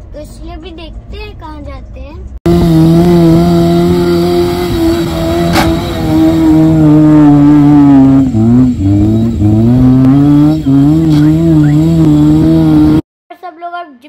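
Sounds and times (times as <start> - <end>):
car engine revving hard: 2.5 - 13.0.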